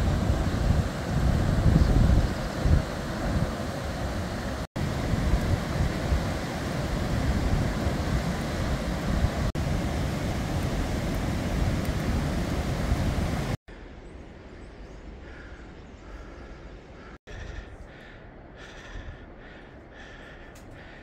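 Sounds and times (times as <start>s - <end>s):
stream and waterfall rushing: 0.0s - 13.6s
wind buffeting microphone: 0.0s - 13.6s
quiet outdoor background: 13.7s - 21.0s.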